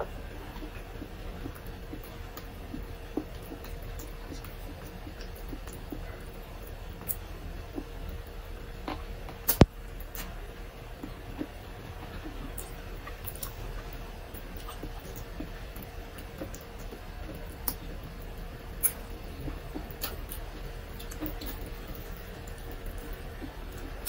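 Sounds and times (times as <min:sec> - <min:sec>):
faint steady hum: 0:00.0 - 0:24.0
lip smacks and chewing clicks: 0:08.8 - 0:10.4, 0:18.8 - 0:24.0.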